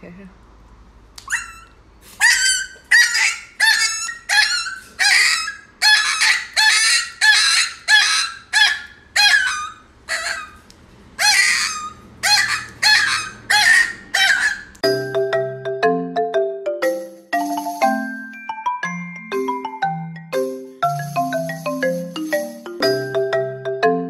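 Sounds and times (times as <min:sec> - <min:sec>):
puppy yelping: 0:01.2 - 0:10.6, 0:11.2 - 0:14.8.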